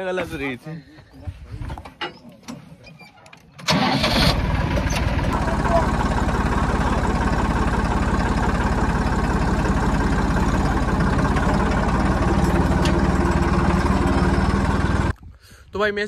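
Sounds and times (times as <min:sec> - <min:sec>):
tractor diesel engine idling: 0:03.6 - 0:15.1.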